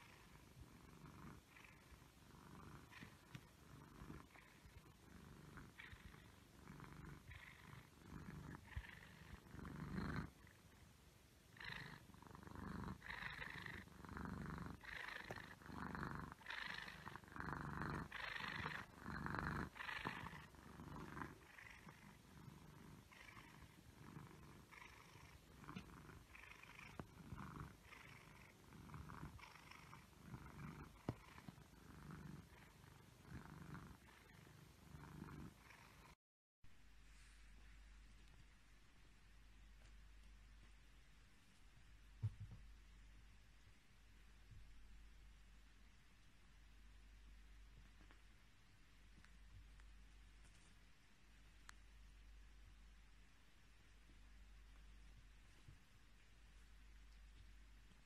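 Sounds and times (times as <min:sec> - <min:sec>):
cat purring: 0:00.0 - 0:36.2.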